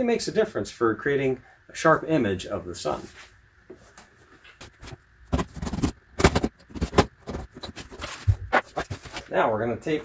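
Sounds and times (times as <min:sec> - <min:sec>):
cardboard box scraping and knocking: 0:04.7 - 0:09.3.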